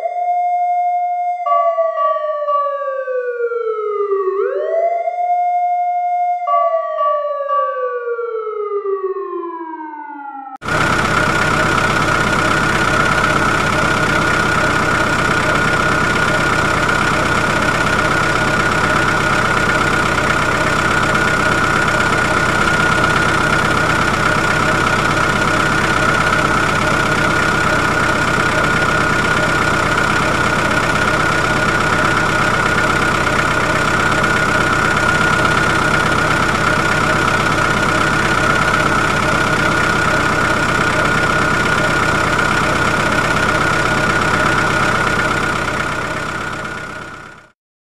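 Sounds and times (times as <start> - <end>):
constant high whine: 10.6 - 47.3
diesel engine drone: 10.6 - 47.5.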